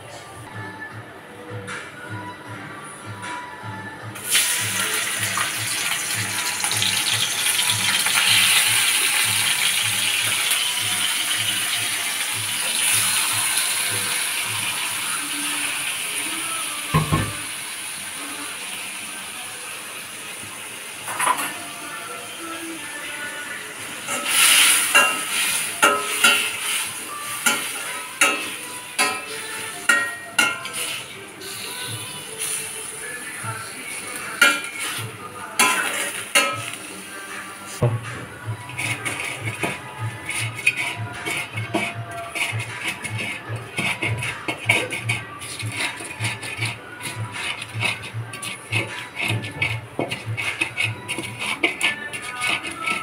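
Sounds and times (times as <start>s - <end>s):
prawns sizzling in hot oil: 4.2s - 37.8s, 38.4s - 53.0s
metal spatula clanking on wok: 24.1s - 26.8s, 27.4s - 30.9s, 34.4s - 35.0s, 35.6s - 36.8s.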